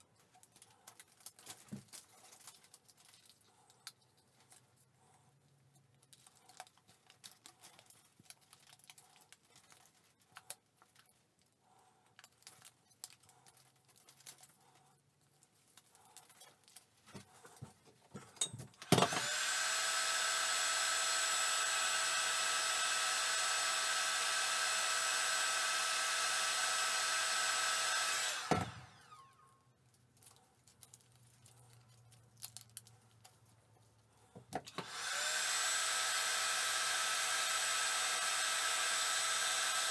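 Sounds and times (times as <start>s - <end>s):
plastic strip rustling: 0.0s - 18.9s, 29.8s - 34.8s
heat gun whining: 18.8s - 29.6s, 34.5s - 39.9s.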